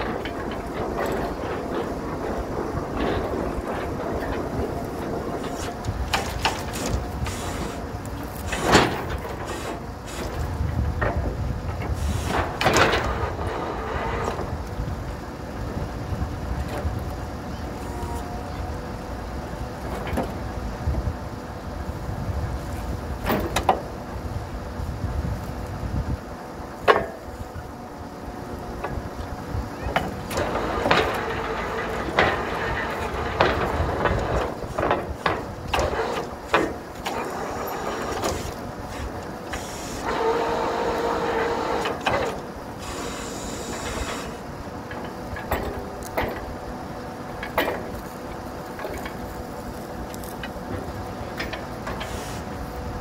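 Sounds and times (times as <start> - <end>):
drill rods knocking and clanking: 0.0 - 14.6, 26.8 - 27.3, 29.8 - 46.6, 47.3 - 49.3, 50.2 - 52.6
drilling rig engine droning: 0.0 - 53.0
hissing air: 5.0 - 8.8, 12.0 - 12.6, 35.7 - 44.6.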